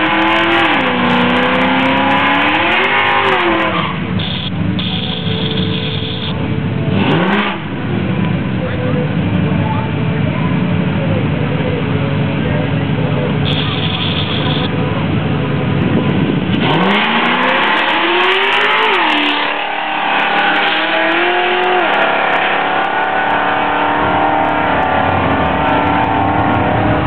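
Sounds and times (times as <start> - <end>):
cars accelerating hard: 0.0 - 5.1, 6.9 - 8.2, 15.7 - 27.0.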